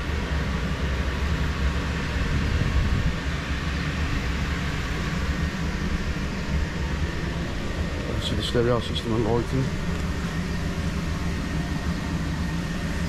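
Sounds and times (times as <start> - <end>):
inflator blower fan rumbling: 0.0 - 13.0.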